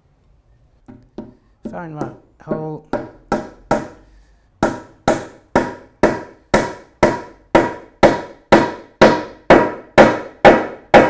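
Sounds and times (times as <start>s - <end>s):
hammer striking wooden wedge: 0.9s - 11.0s.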